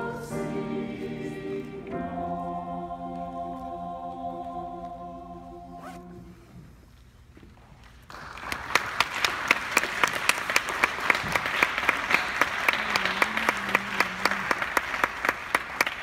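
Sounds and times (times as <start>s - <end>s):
audience applause: 8.1s - 16.0s.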